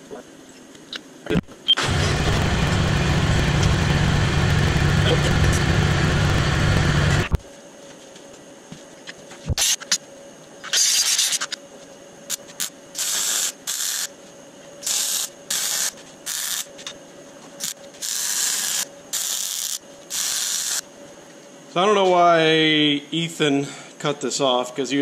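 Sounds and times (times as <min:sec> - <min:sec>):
welder crackling hiss: 0:09.5 - 0:10.0, 0:10.6 - 0:11.6, 0:12.3 - 0:14.1, 0:14.8 - 0:16.9, 0:17.6 - 0:20.9.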